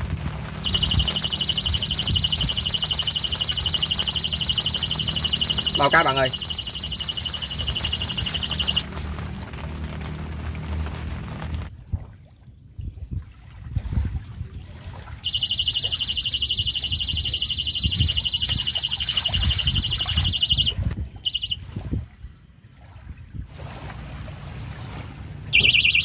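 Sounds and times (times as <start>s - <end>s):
electronic bite alarm buzzing: 0.6s - 8.9s, 15.2s - 21.6s, 25.5s - 26.0s.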